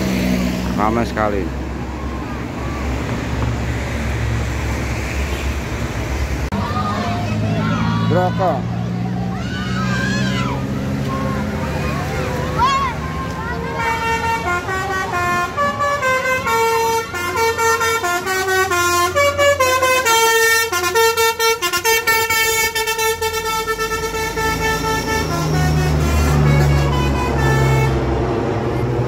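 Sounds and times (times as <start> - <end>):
bus engine running loudly: 0.0 - 29.0
bus musical horn tune: 13.7 - 29.0.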